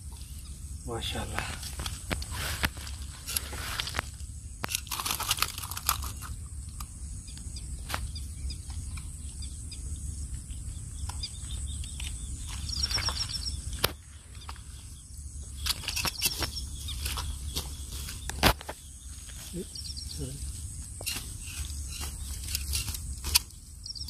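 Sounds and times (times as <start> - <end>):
bird chirping trill: 0.0 - 1.3, 6.1 - 24.0.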